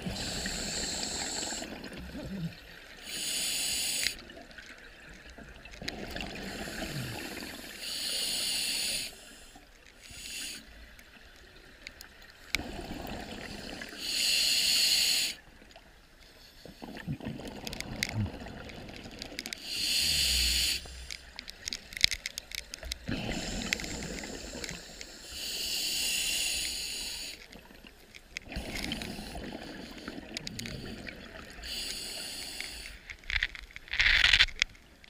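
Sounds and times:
regulator breathing hiss: 0:00.1 - 0:01.8, 0:03.0 - 0:04.2, 0:06.6 - 0:10.8, 0:13.9 - 0:15.4, 0:19.6 - 0:21.3, 0:23.2 - 0:27.5, 0:31.6 - 0:33.1
bubbling underwater: 0:16.8 - 0:19.4.

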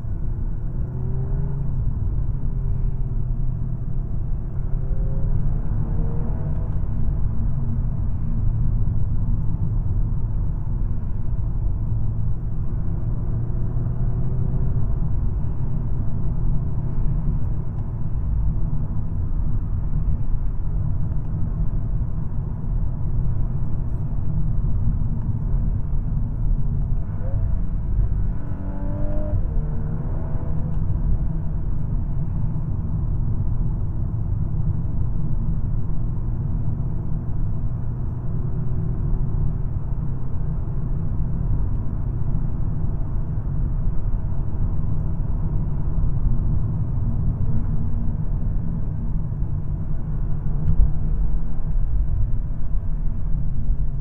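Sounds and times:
car engine from inside cabin: 0:00.0 - 0:54.0.

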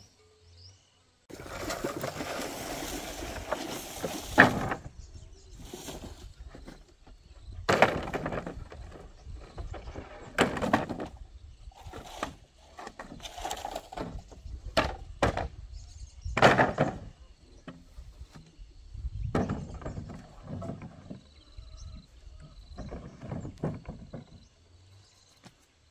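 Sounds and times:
bamboo poles knocking together: 0:03.4 - 0:04.9, 0:07.7 - 0:11.2, 0:11.9 - 0:15.6, 0:16.4 - 0:17.9, 0:19.3 - 0:21.2.

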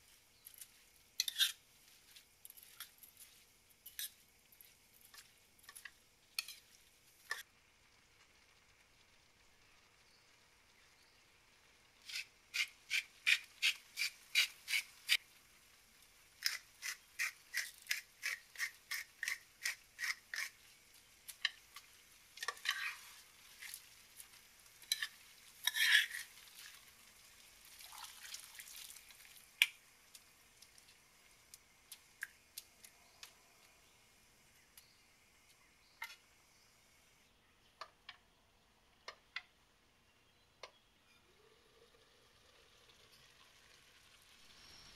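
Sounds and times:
metal spoon scraping frying pan: 0:00.6 - 0:01.6, 0:02.5 - 0:04.2, 0:05.0 - 0:07.4, 0:22.4 - 0:23.8, 0:24.8 - 0:26.4.

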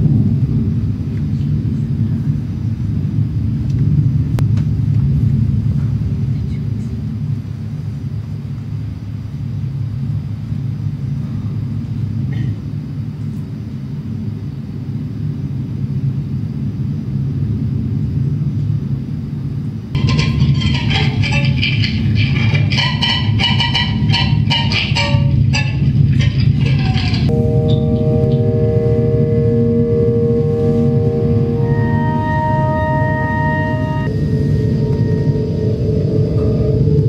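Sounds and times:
low rumbling drone: 0:00.0 - 0:37.0
plucked-string music: 0:20.0 - 0:35.4.

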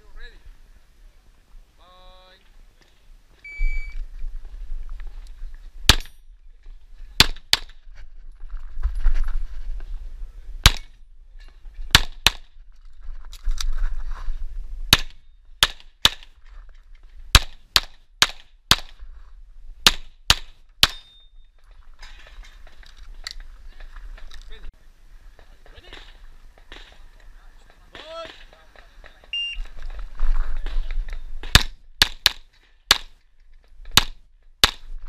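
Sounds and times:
shot timer beep: 0:03.5 - 0:04.0
pistol shots: 0:10.6 - 0:10.9, 0:31.4 - 0:33.1.

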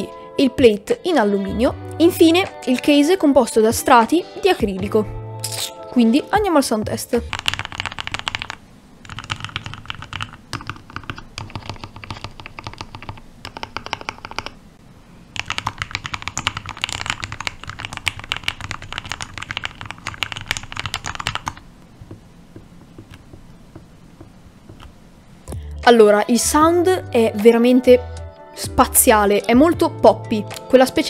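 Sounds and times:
mechanical keyboard typing: 0:07.3 - 0:14.6, 0:15.4 - 0:21.6.

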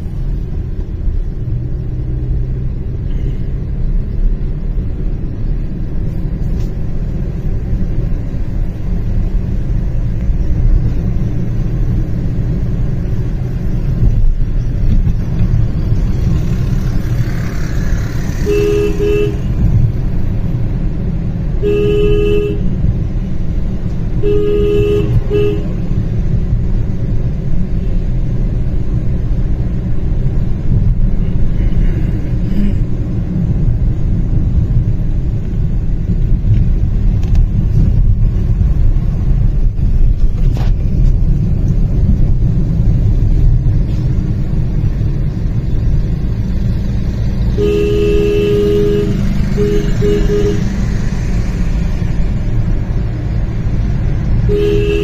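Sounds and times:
road and engine rumble: 0:00.0 - 0:55.0
vehicle horn honking: 0:18.4 - 0:19.7, 0:21.6 - 0:22.7, 0:24.2 - 0:25.8, 0:47.5 - 0:50.9, 0:54.5 - 0:55.0.

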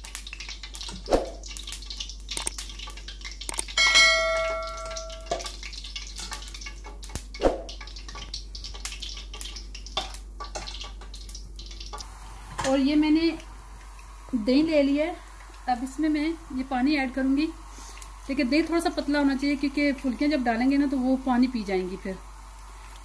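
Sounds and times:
batter sizzling in hot oil: 0:00.0 - 0:23.0
bell chime: 0:03.8 - 0:05.3.

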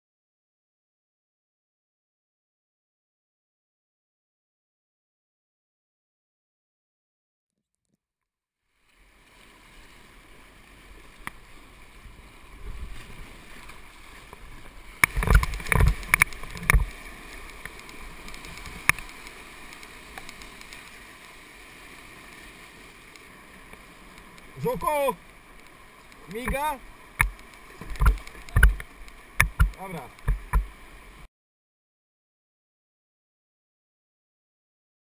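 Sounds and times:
water splashing against kayak: 0:08.7 - 0:31.3
rushing whitewater: 0:08.9 - 0:31.3.

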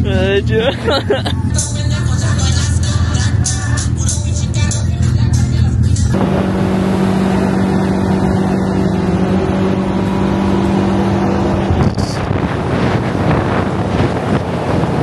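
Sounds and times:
wind and road noise: 0:00.0 - 0:01.6, 0:05.8 - 0:15.0
engine droning: 0:00.0 - 0:15.0.

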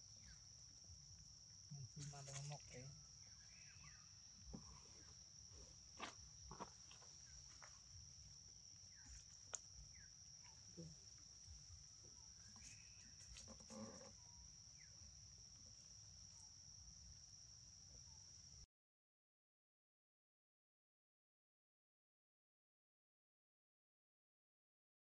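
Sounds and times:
high-pitched insect drone: 0:00.0 - 0:18.6.

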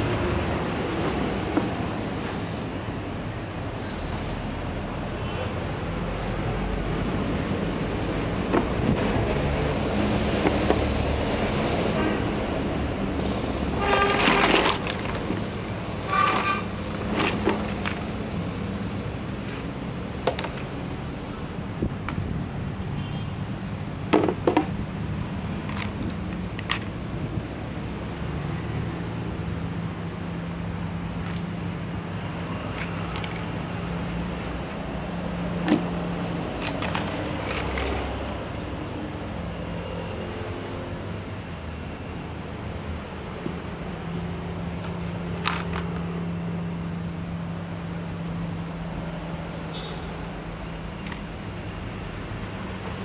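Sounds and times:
plastic tray squeaking and scraping: 0:13.7 - 0:18.1
plastic toy pieces clattering: 0:13.8 - 0:15.4, 0:16.0 - 0:18.2, 0:25.6 - 0:27.0, 0:36.6 - 0:38.0, 0:44.8 - 0:46.0
plastic toy pieces clicking: 0:44.8 - 0:46.0.

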